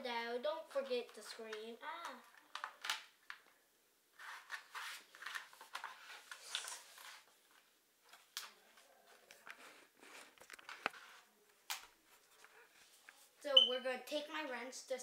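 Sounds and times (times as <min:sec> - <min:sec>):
hands brushing grip tape: 0:04.2 - 0:07.3.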